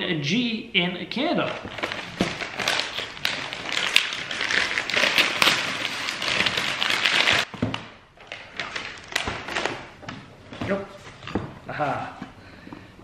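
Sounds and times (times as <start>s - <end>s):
paper tearing and crumpling: 1.5s - 7.5s.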